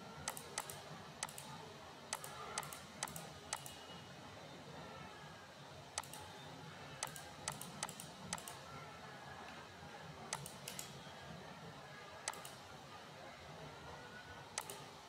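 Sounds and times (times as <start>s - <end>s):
computer mouse buttons clicking: 0.2s - 1.5s, 2.1s - 3.8s, 6.0s - 6.2s, 7.0s - 8.6s, 10.3s - 10.9s, 12.3s - 12.6s, 14.6s - 14.8s.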